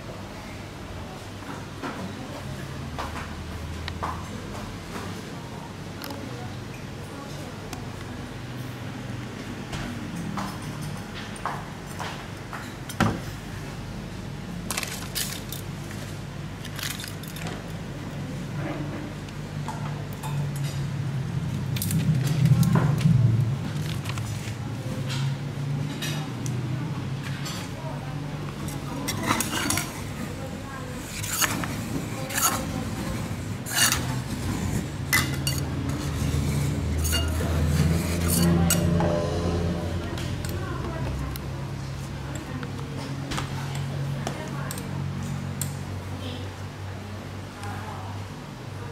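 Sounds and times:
metal spatulas scraping on steel: 31.0 - 39.2.

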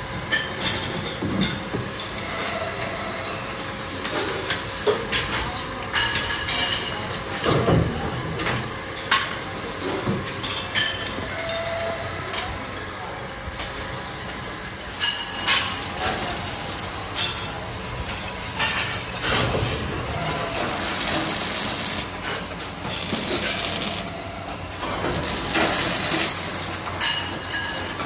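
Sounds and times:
steel tubes clanking: 14.9 - 28.0.

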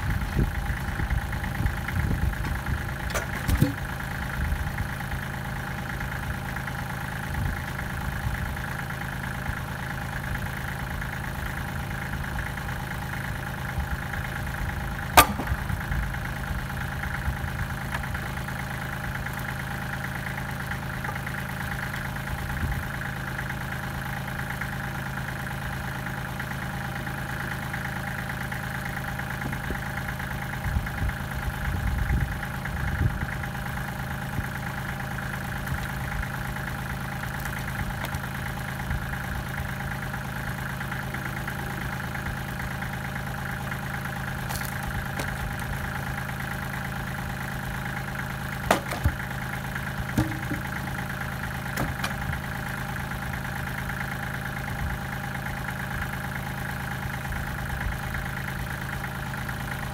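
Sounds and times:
tractor diesel engine idling: 0.0 - 59.9
low clunks: 2.3 - 3.9, 15.2 - 15.9, 48.6 - 49.2, 50.1 - 50.9, 51.7 - 52.4.

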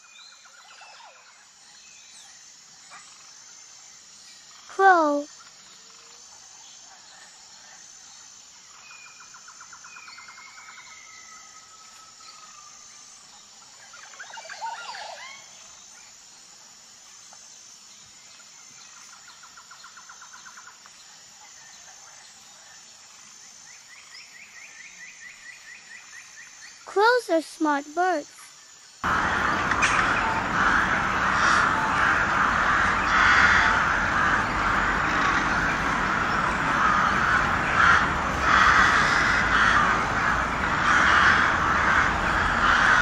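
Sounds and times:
high-pitched insect drone: 7.9 - 43.0
birds calling and trilling: 29.0 - 43.0
rapid pulsed trills: 29.0 - 43.0.

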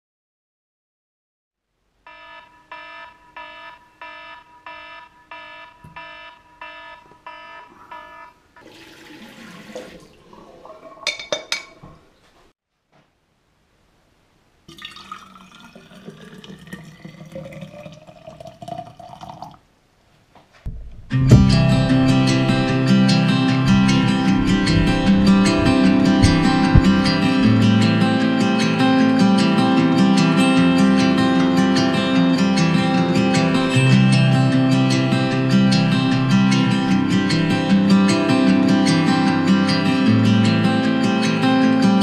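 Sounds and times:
electronic alarm beeping: 2.1 - 8.7
water running in sink: 8.6 - 11.9, 14.7 - 19.6
guitar music: 20.7 - 42.0.

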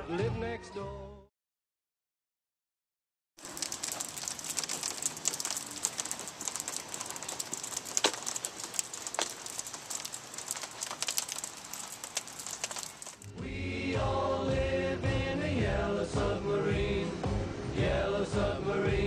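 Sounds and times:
rain pattering on asphalt: 3.4 - 13.3.

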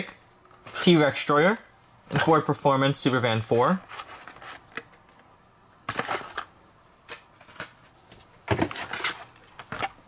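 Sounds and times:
cardboard and plastic rustling: 3.5 - 5.2, 5.9 - 6.5, 7.1 - 10.0.

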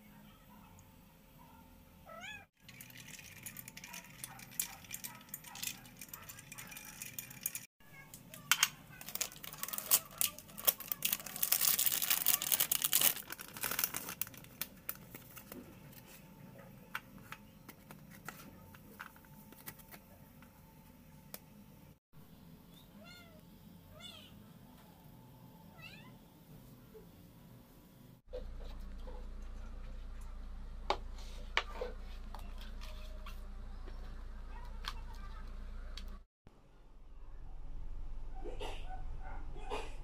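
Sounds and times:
ice and spoon clinking in glass: 2.6 - 7.7.

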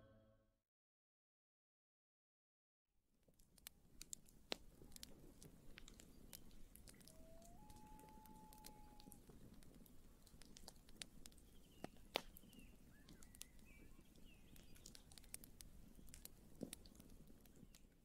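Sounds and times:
campfire crackling: 3.4 - 18.0
faint high chirps: 6.1 - 9.2.

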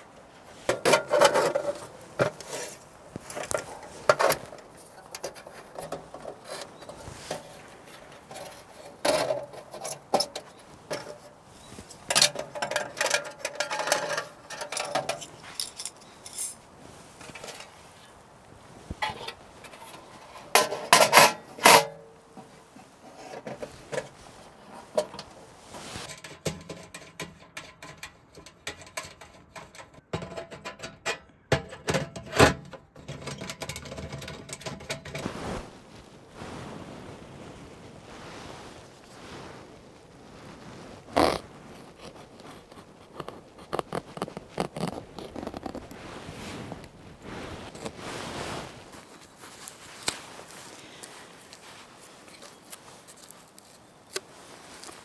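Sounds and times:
metal clatter: 0.6 - 11.3, 12.0 - 16.6
metal clanks and scrapes: 0.6 - 18.0, 18.8 - 35.6.

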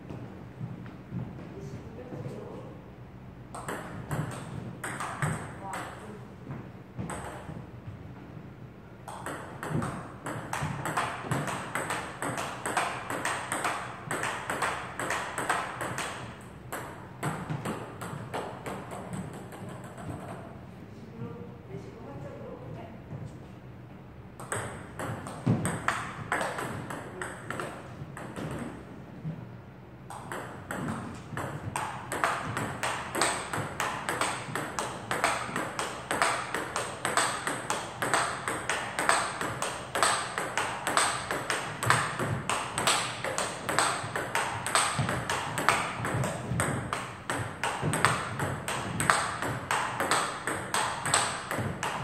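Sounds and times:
ball bouncing on table: 3.5 - 7.6, 9.1 - 20.4, 24.4 - 28.8, 30.1 - 52.0
table tennis ball clicking off paddles: 3.6 - 6.0, 9.1 - 20.4, 24.4 - 28.8, 30.1 - 52.0.

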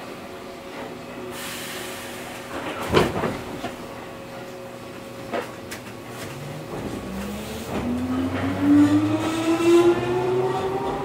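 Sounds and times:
train equipment humming: 0.0 - 11.0
air hiss of train doors: 1.3 - 2.9.

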